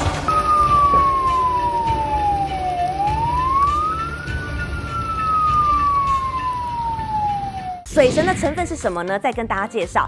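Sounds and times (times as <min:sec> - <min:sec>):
heavy rain: 0:00.0 - 0:07.6
emergency siren wailing: 0:00.3 - 0:07.9.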